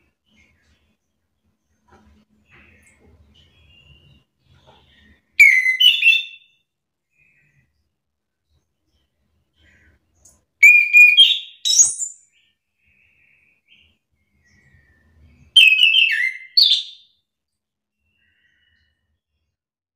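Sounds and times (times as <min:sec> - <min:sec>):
thrush singing whistled song: 0:02.5 - 0:07.7, 0:10.6 - 0:17.2.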